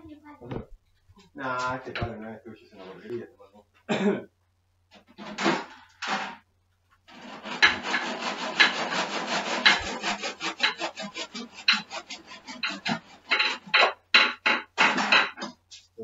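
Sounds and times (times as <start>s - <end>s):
wood being rasped: 7.1s - 15.5s.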